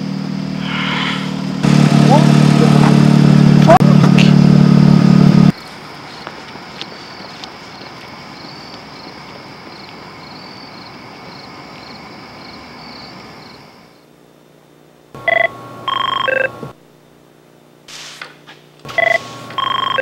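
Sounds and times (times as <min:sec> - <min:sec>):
outdoor night hiss: 0:05.5 - 0:15.2, 0:16.8 - 0:19.7
telephone ringing: 0:15.2 - 0:16.6, 0:18.9 - 0:20.0.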